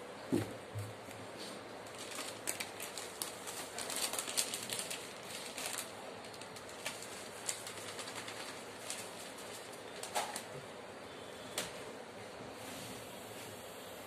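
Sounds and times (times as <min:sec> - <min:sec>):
plastic bag crinkling: 0:01.8 - 0:10.6.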